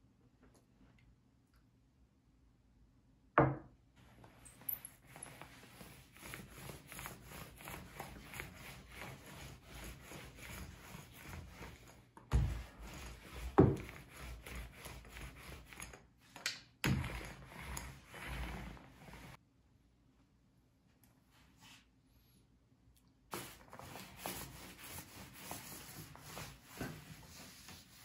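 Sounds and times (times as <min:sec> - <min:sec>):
paint roller rubbing on board: 0:05.1 - 0:16.0, 0:16.9 - 0:19.4, 0:23.3 - 0:28.0.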